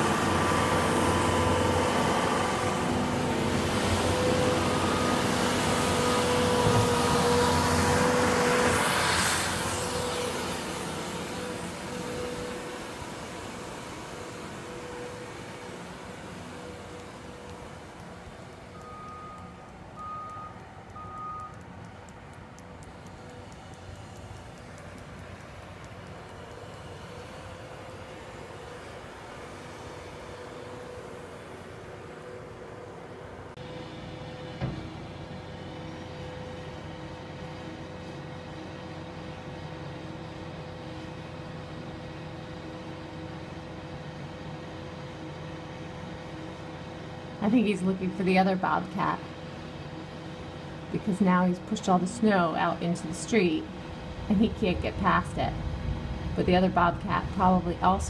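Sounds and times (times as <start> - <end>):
loader engine running: 0.0 - 58.0
backup alarm beeping: 18.7 - 21.7.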